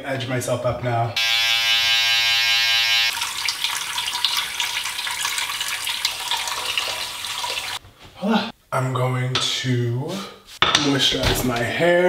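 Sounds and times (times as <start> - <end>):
hair trimmer buzzing: 1.2 - 3.1.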